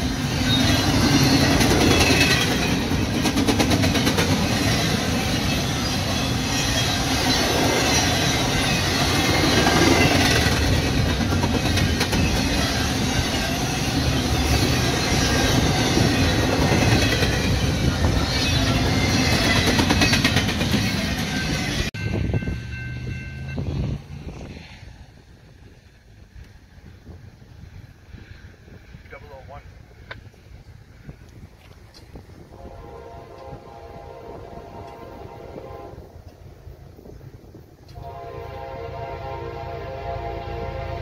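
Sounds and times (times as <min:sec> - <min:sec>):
wheels clacking over rail joints: 0:00.0 - 0:21.9
freight train wheels on rails: 0:00.0 - 0:41.0.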